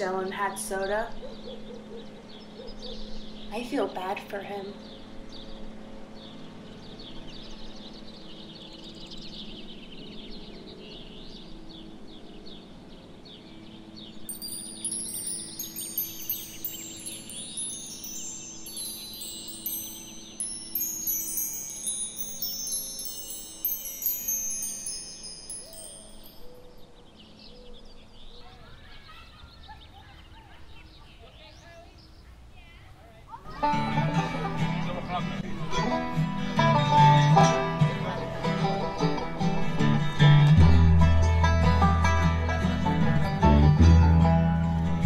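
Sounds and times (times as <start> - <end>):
chimes tinkling: 14.3 - 26.8.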